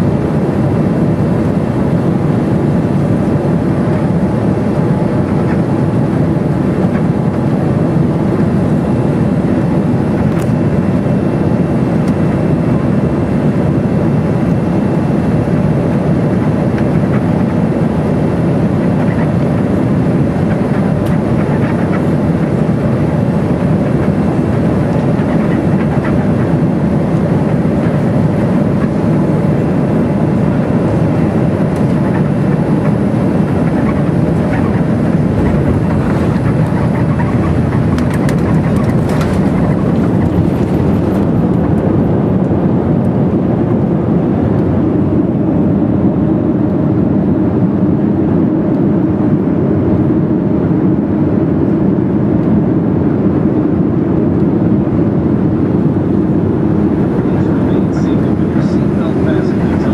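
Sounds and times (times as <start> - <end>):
jet engine noise: 0.0 - 59.9
rushing air: 27.6 - 42.1.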